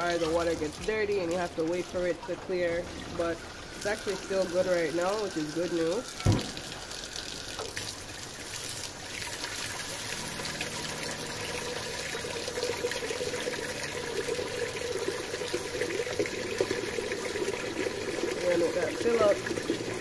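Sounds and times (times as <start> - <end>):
tap water filling metal pot: 0.0 - 20.0.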